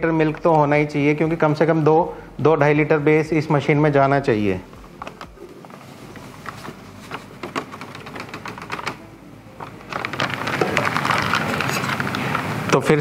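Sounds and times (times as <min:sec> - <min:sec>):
foil pouch crinkling: 0:09.6 - 0:13.0
powder rustling into steel pail: 0:09.6 - 0:13.0.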